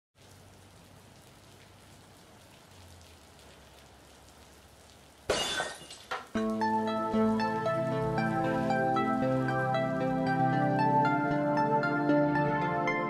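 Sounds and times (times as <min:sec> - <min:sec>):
faint steady hiss: 0:00.2 - 0:12.7
glass shattering: 0:05.3 - 0:06.3
music with held tones: 0:06.3 - 0:13.0.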